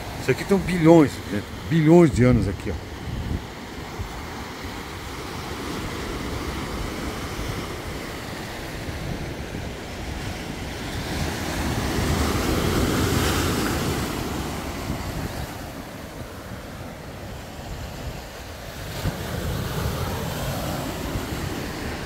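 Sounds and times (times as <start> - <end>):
surf washing against rocks: 0.0 - 22.0
wind on microphone: 0.0 - 22.0.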